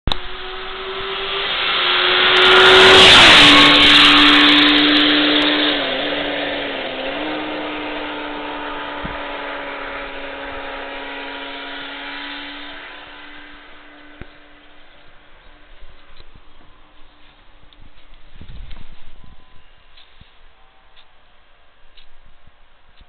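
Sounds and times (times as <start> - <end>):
motorcycle passing at speed: 0.1 - 15.8.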